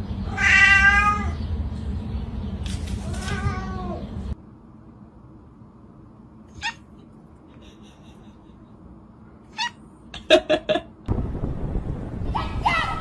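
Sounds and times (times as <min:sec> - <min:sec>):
cat meowing: 0:00.3 - 0:01.4, 0:03.0 - 0:04.0, 0:06.5 - 0:06.9, 0:09.5 - 0:09.8
steady rushing noise: 0:11.0 - 0:13.0.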